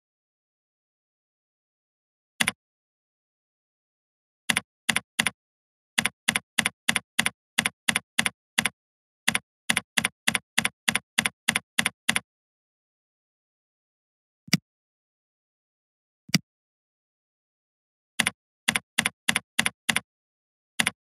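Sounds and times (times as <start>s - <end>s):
keyboard typing: 4.5s - 5.4s, 6.0s - 12.2s, 18.2s - 20.1s, 20.8s - 21.0s.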